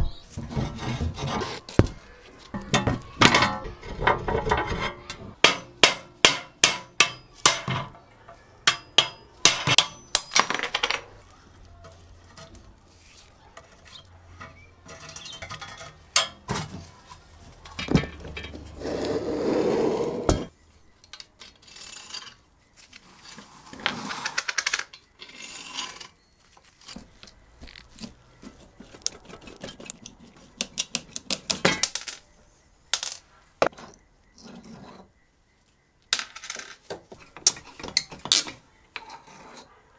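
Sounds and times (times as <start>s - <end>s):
hand tools knocking on metal: 1.8s - 8.0s, 8.6s - 10.3s.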